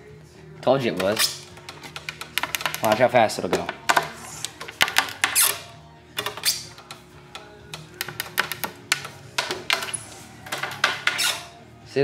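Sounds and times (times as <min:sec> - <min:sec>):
door closer squeaking: 0:01.0 - 0:02.0, 0:05.2 - 0:07.0, 0:09.8 - 0:11.6.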